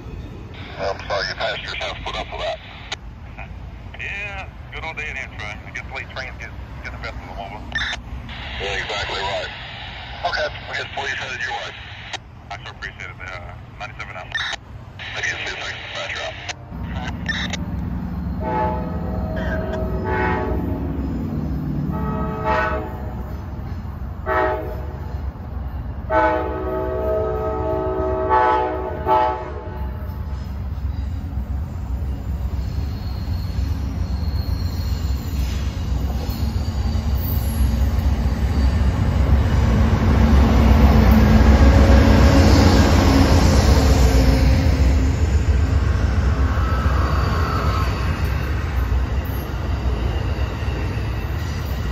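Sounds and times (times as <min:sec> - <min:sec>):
locomotive rumble: 0:00.0 - 0:51.9
train horn blasts: 0:18.2 - 0:20.8, 0:21.8 - 0:23.3, 0:24.2 - 0:25.0, 0:26.1 - 0:30.0
train wheels on rails: 0:29.9 - 0:51.9.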